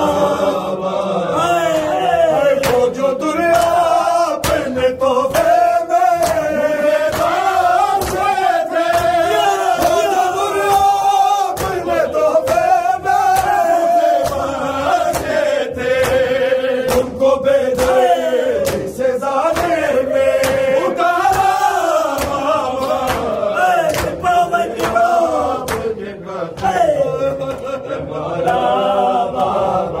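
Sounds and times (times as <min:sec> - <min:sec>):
men chanting a lament: 0:00.0 - 0:30.0
hands slapping chest: 0:02.6 - 0:02.9, 0:03.5 - 0:26.0.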